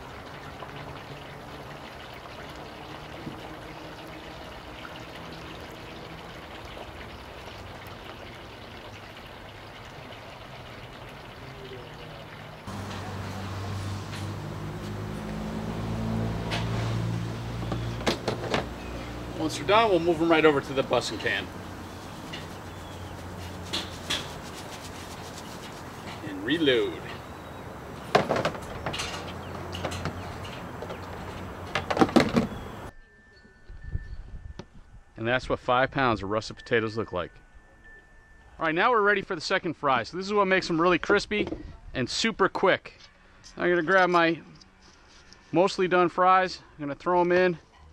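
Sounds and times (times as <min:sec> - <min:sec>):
fries sizzling in oil: 0:00.0 - 0:31.4
wire basket and tub clattering: 0:12.7 - 0:32.9.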